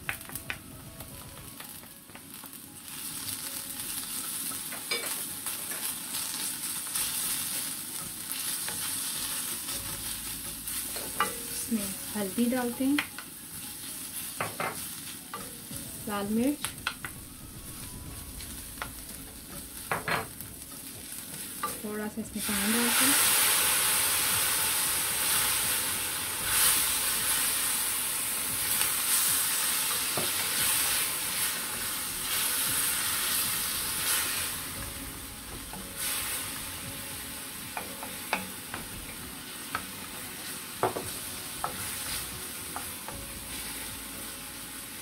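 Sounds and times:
masala sizzling in a frying pan: 0:00.0 - 0:45.0
spatula tapping a pan: 0:37.7 - 0:40.0, 0:40.8 - 0:41.9.

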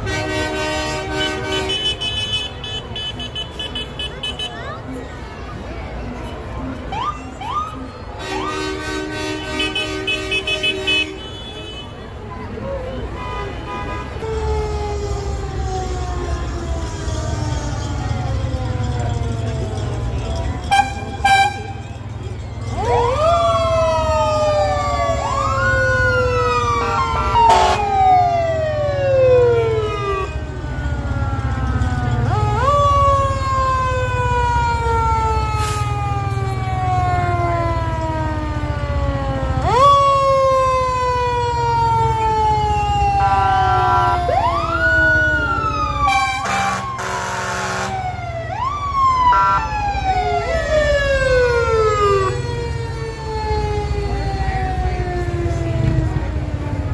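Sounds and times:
fire truck siren wailing: 0:00.0 - 0:03.6, 0:05.6 - 0:11.3, 0:12.8 - 0:56.9
short horn blasts: 0:46.1 - 0:48.0.

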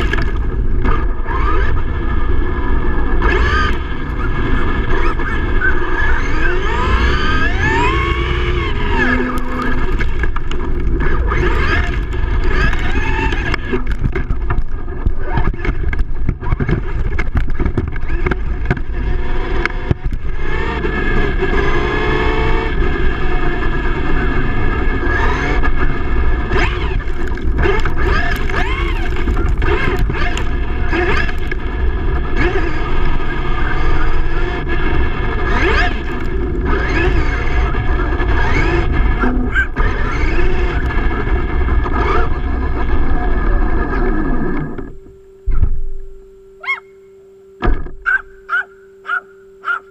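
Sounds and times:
wind noise: 0:00.0 - 0:46.1
electric motor whining: 0:00.0 - 0:49.9.

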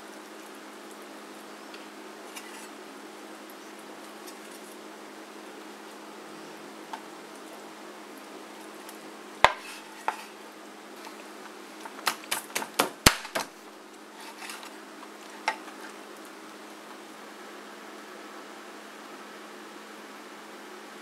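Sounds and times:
cleaver chopping on cutting board: 0:09.5 - 0:10.2.

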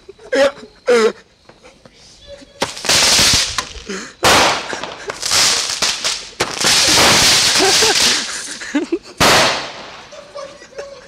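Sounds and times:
fireworks blasts with hiss: 0:02.6 - 0:10.2.

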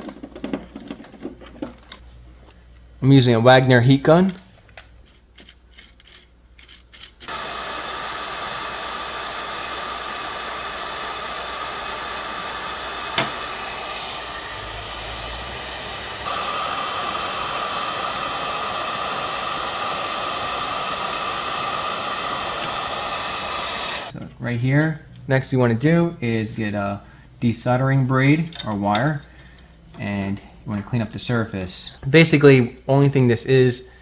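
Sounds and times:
heat gun blowing with whine: 0:07.3 - 0:24.2.

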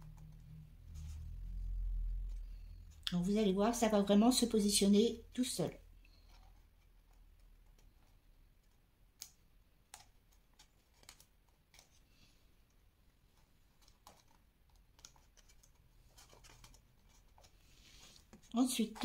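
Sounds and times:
paper ticks and crackles: 0:06.1 - 0:12.2, 0:13.3 - 0:19.0.

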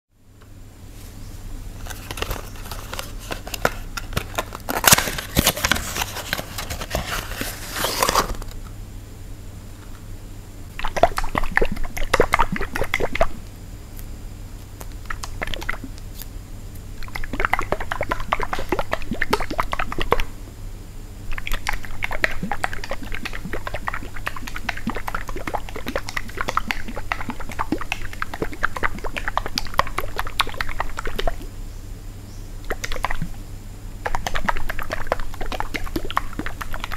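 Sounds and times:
packaging tearing: 0:01.8 - 0:08.6
packaging crinkling and rustling: 0:01.8 - 0:08.7.

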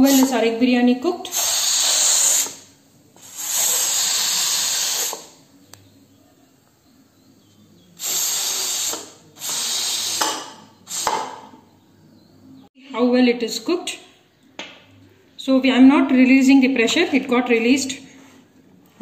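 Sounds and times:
steam hissing from pressure cooker: 0:00.0 - 0:00.4, 0:01.3 - 0:05.4, 0:08.0 - 0:11.4.

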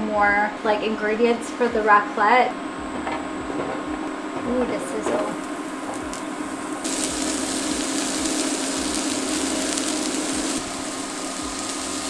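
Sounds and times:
electrical hum: 0:00.0 - 0:12.0
vegetables sizzling on grill: 0:05.2 - 0:12.0.

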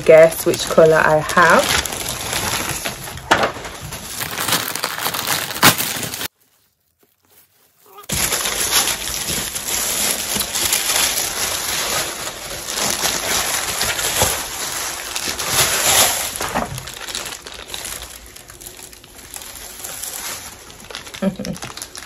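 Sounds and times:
plastic and paper crinkling: 0:00.0 - 0:22.0.

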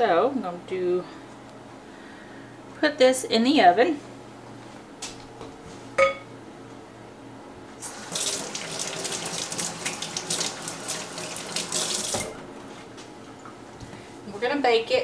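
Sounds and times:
faucet running into sink: 0:07.8 - 0:12.4.

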